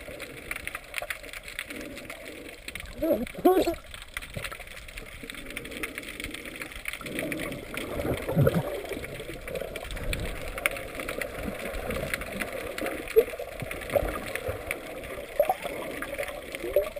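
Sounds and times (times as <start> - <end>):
faint crackling ticks: 0.0 - 16.9
muffled underwater water movement: 0.0 - 16.9.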